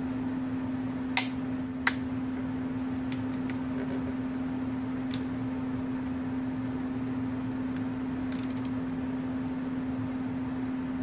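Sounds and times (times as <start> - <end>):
steady low hum: 0.0 - 11.0
torque wrench clicks: 8.3 - 8.8.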